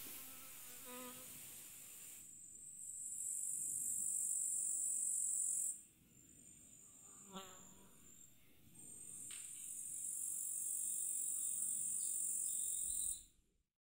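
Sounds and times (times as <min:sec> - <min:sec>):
soft outdoor hiss: 0:00.0 - 0:13.3
cricket trilling: 0:02.6 - 0:08.3, 0:08.9 - 0:13.3.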